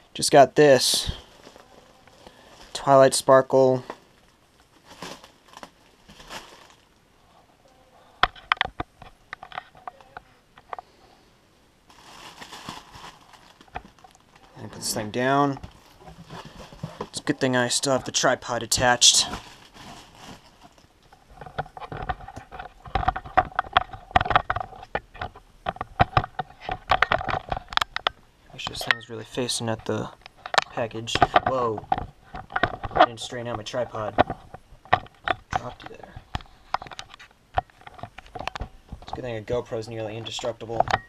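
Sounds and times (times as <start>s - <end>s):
plastic wrap rustling and crinkling: 0.8s - 7.0s, 11.8s - 28.0s.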